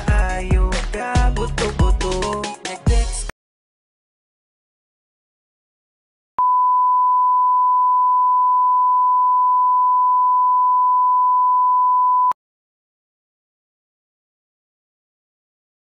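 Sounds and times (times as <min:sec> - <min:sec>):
pure test tone beep: 0:06.4 - 0:12.4.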